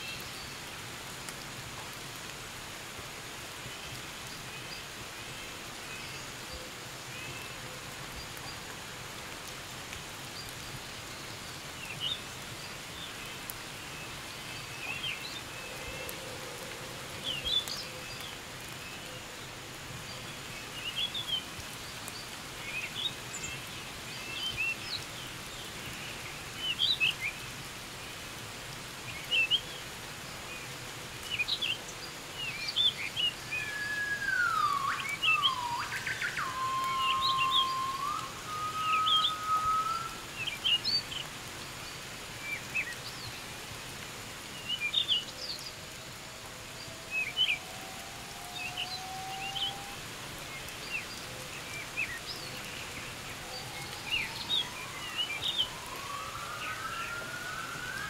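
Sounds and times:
light rain on foliage: 0.0 - 58.0
birds chirping: 32.4 - 41.3.

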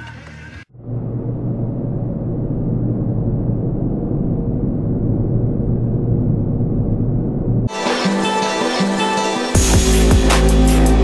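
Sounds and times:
car road and engine rumble: 0.7 - 7.7.

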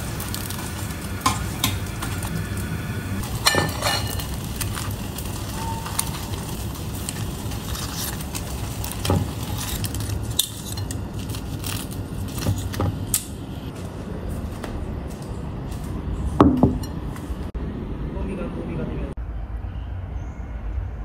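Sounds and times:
knife and tongs scraping plate: 7.1 - 13.0.

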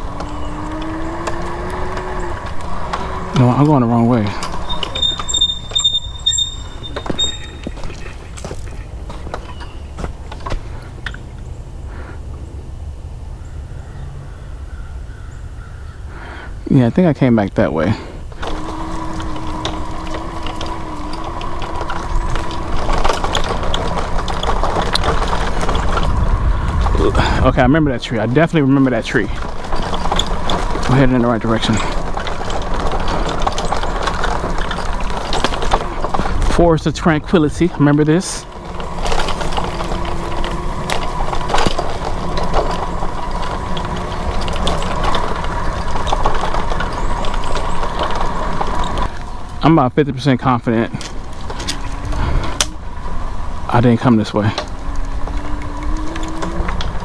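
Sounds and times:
footsteps crunching on dry leaves: 6.1 - 10.9
low microphone rumble: 17.9 - 57.0.

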